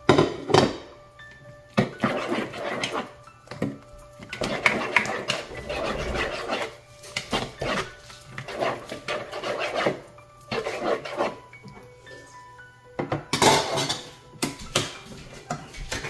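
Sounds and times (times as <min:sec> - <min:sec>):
spoon scraping mixing bowl: 0:01.8 - 0:12.4, 0:14.8 - 0:16.0.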